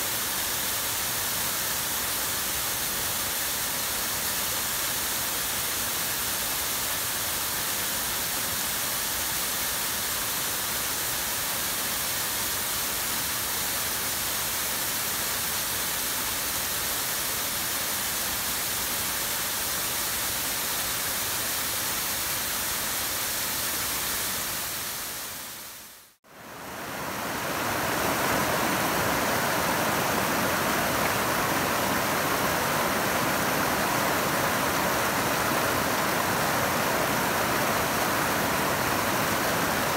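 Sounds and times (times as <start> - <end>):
waterfall spray rushing: 0.0 - 39.9
river running over rocks: 25.8 - 39.9.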